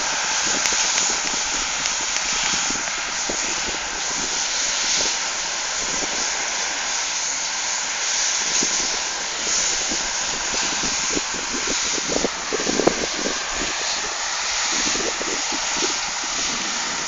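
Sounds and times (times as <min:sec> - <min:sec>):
distant combine harvesters: 0:00.0 - 0:17.0
wind on microphone: 0:00.0 - 0:17.0
wind gust thumps: 0:08.6 - 0:17.0.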